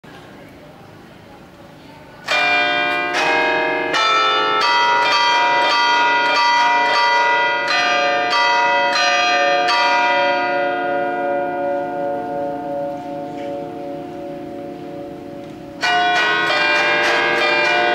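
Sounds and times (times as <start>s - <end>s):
church bells ringing a tune: 2.2s - 17.9s.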